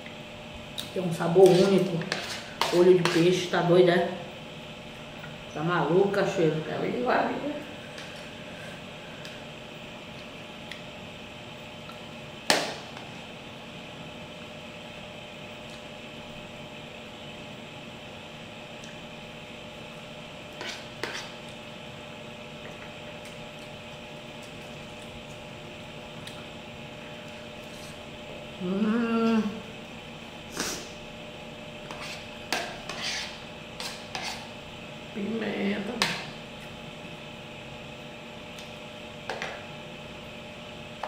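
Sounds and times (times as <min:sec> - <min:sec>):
room hum and hiss: 0:00.0 - 0:41.0.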